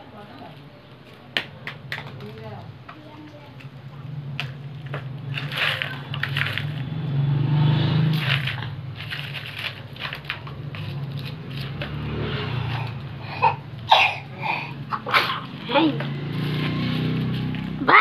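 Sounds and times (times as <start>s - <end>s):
dry onion peels crackling: 0.1s - 7.0s, 8.1s - 13.9s
child voice sounds: 17.8s - 18.0s.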